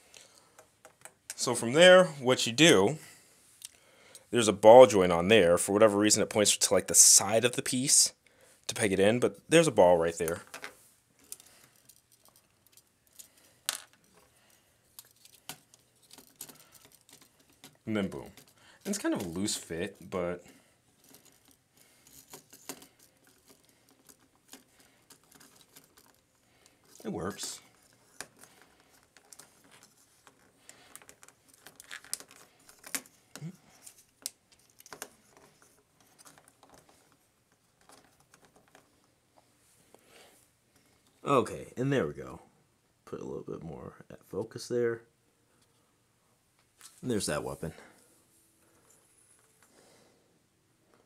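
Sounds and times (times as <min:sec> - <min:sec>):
plastic parts clicking together: 0:14.9 - 0:19.4, 0:21.0 - 0:39.0
plastic toy parts clicking: 0:27.7 - 0:33.2.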